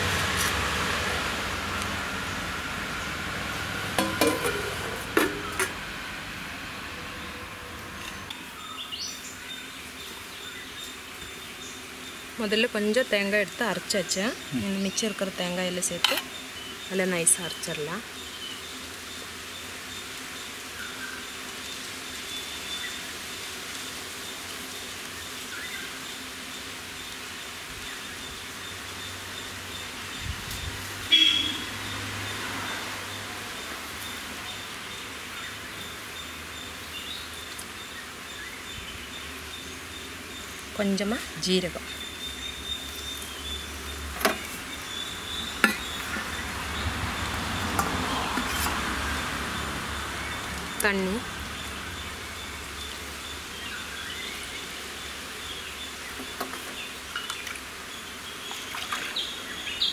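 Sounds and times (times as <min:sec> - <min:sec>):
background hiss: 0:00.0 - 0:59.9
metal vessels knocking: 0:03.9 - 0:05.8.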